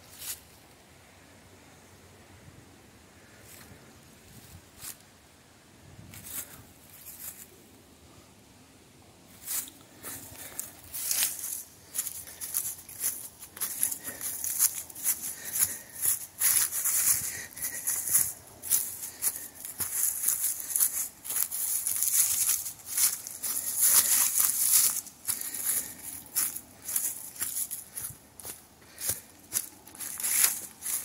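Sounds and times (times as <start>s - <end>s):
footsteps crunching dry leaves: 9.3s - 31.0s.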